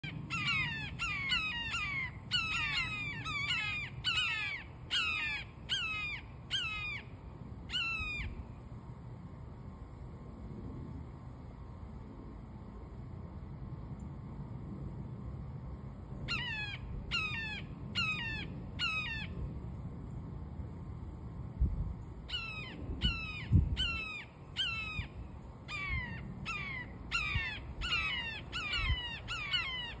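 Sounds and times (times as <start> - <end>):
hawks calling shrilly: 0.3 - 7.1, 7.7 - 8.4, 16.3 - 19.3, 22.3 - 30.0.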